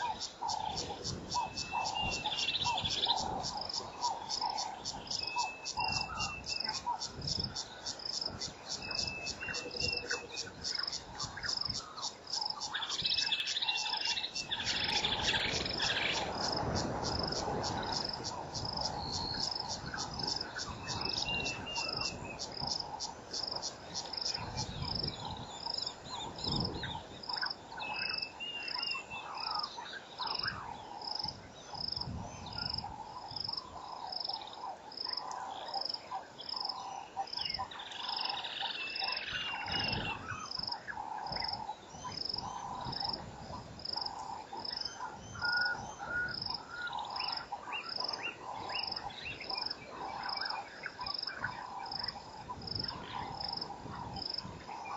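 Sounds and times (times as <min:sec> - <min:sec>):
high repeating insect chirp: 0:00.0 - 0:28.8
pulsing frog chorus: 0:00.0 - 0:54.9.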